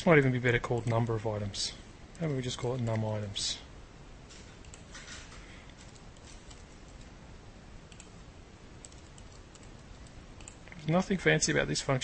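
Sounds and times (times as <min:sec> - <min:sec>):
steady low hiss: 0:00.0 - 0:12.0
keyboard and mouse clicks: 0:00.5 - 0:01.2, 0:02.1 - 0:03.2, 0:04.6 - 0:07.1, 0:07.9 - 0:08.2, 0:08.8 - 0:10.9.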